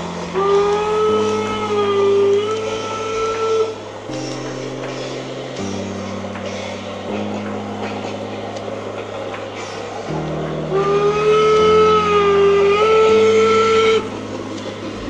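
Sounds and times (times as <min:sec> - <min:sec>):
background music: 0:00.0 - 0:15.0
steam whistle: 0:00.1 - 0:04.9, 0:10.1 - 0:14.9.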